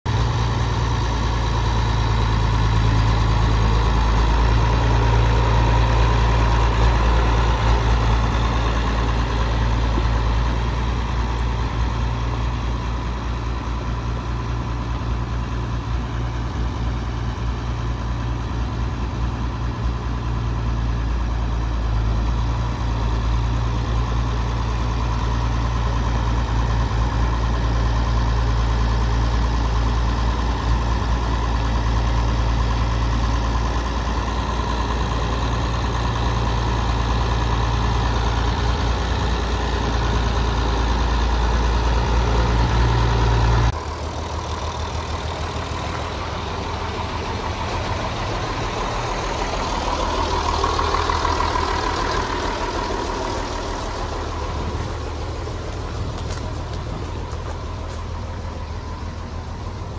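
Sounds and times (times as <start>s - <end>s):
tractor diesel engine running: 0.0s - 59.9s.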